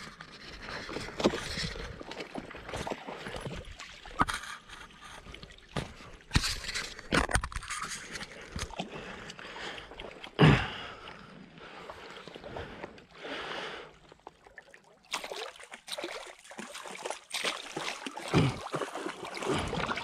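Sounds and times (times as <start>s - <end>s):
water sloshing and splashing: 0.0s - 20.0s
camera knocking and scraping: 6.3s - 8.7s.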